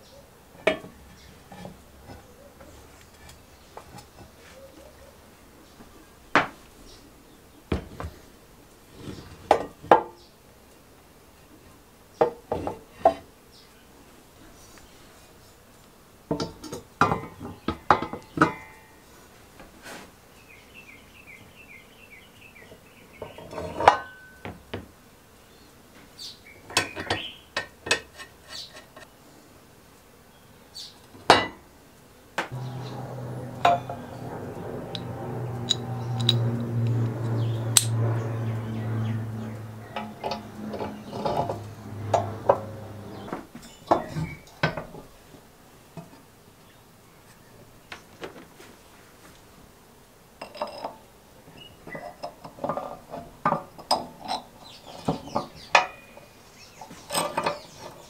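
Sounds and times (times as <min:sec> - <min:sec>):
steady low hum: 0:32.5 - 0:45.6
metal parts clinking and knocking: 0:34.9 - 0:37.0.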